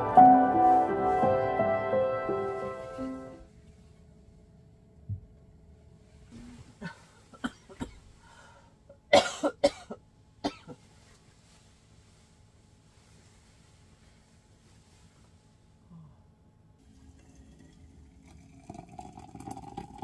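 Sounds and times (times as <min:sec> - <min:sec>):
person coughing: 0:06.8 - 0:08.1, 0:09.1 - 0:10.8.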